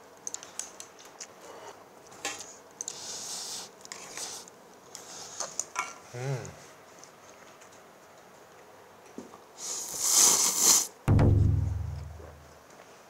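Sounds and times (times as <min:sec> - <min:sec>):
person humming mm: 0:06.1 - 0:06.6
noodles slurped: 0:09.8 - 0:10.9.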